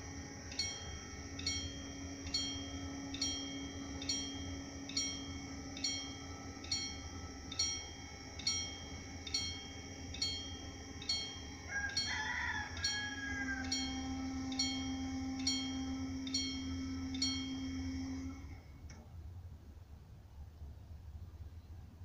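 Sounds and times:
steady low hum: 0:00.0 - 0:22.0
level crossing bell ringing: 0:00.5 - 0:17.9.

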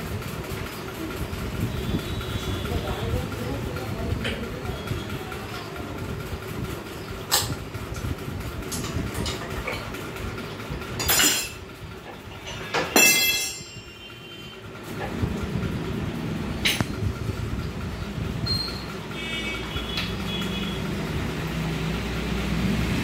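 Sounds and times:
metal tools clinking on engine: 0:07.1 - 0:15.2, 0:16.6 - 0:17.1
metallic ring: 0:11.0 - 0:11.6, 0:12.5 - 0:14.2.

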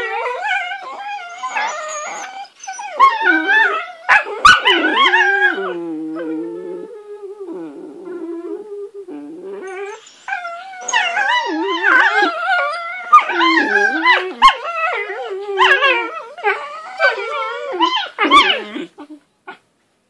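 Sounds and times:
puppies making wavering vocal noises: 0:00.0 - 0:19.6.

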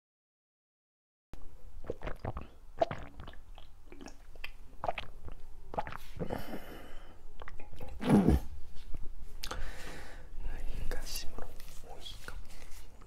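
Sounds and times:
lip smacks: 0:01.8 - 0:06.2, 0:07.4 - 0:08.3, 0:08.9 - 0:09.6
gulping from a drink can: 0:01.8 - 0:06.4
throaty sound: 0:01.8 - 0:08.6.

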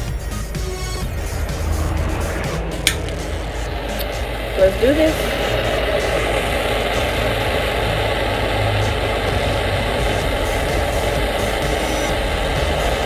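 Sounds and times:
gas torch hissing: 0:00.0 - 0:13.0.

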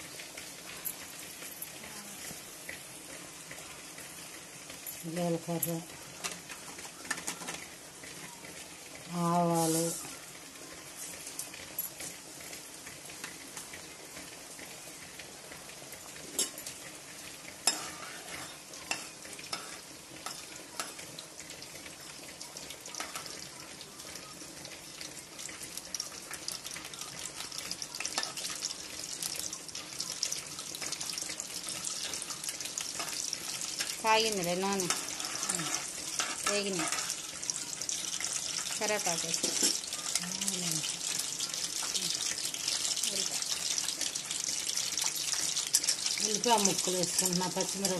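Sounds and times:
seeds sizzling in hot oil: 0:00.0 - 0:47.9
metal spoon scraping pan: 0:17.6 - 0:20.4, 0:34.8 - 0:37.2.

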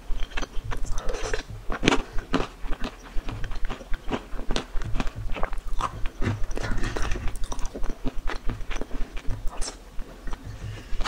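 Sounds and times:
mouth clicks: 0:00.0 - 0:11.0
person chewing crunchy food: 0:00.0 - 0:11.0.

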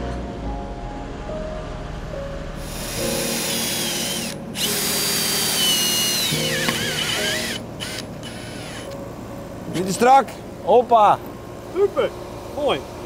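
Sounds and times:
cordless drill motor whining: 0:02.6 - 0:09.0.

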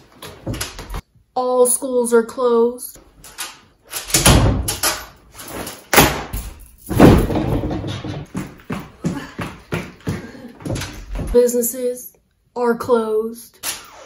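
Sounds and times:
door slamming: 0:04.0 - 0:05.1, 0:05.9 - 0:08.3
loud bangs and thumps: 0:06.0 - 0:08.6.

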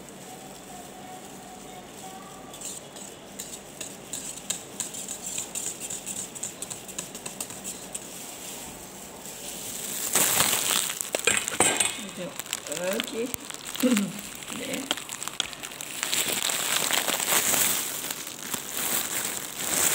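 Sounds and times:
whisk scraping metal pot: 0:02.5 - 0:09.7.

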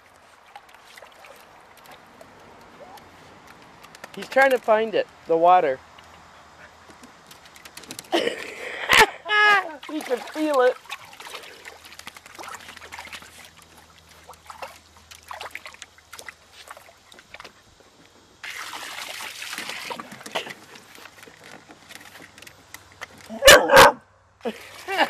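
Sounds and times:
rush of water: 0:00.0 - 0:04.8, 0:07.8 - 0:17.5, 0:18.4 - 0:21.0
hose trickling into water: 0:00.0 - 0:05.3, 0:05.9 - 0:23.3, 0:24.4 - 0:25.0
dog splashing in water: 0:00.3 - 0:04.7, 0:09.5 - 0:17.6, 0:18.4 - 0:21.2.

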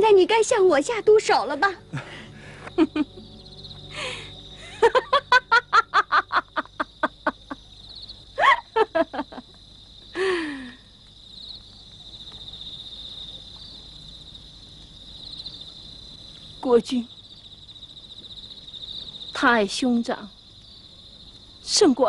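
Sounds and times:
crickets trilling: 0:00.0 - 0:22.0
woman laughing: 0:01.9 - 0:03.3, 0:04.0 - 0:07.7, 0:08.4 - 0:09.6.

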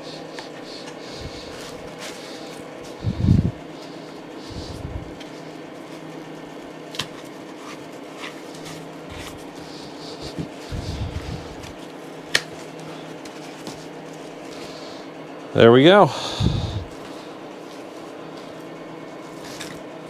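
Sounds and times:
room hum: 0:00.0 - 0:20.0.

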